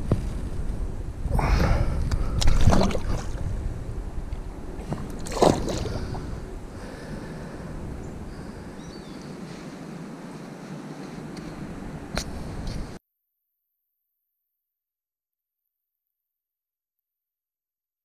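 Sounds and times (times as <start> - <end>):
fish splashing in water: 2.3 - 3.4, 4.9 - 6.3.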